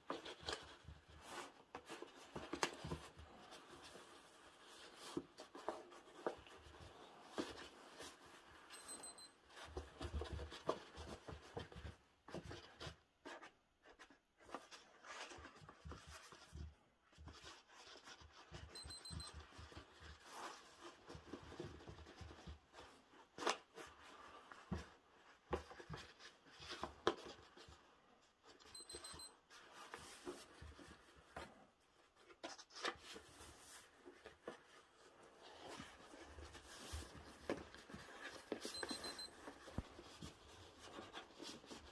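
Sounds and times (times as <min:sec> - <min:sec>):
high electronic beeps: 0:08.8 - 0:09.3, 0:18.8 - 0:19.3, 0:28.7 - 0:29.3, 0:38.8 - 0:39.3
kittens scratching paper: 0:09.6 - 0:18.7, 0:29.5 - 0:38.7, 0:39.4 - 0:41.9.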